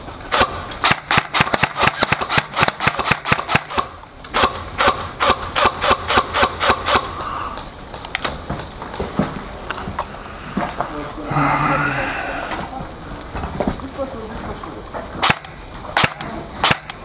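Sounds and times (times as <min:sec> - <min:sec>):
airsoft guns firing rapid shots: 0:00.3 - 0:07.3, 0:15.2 - 0:17.0.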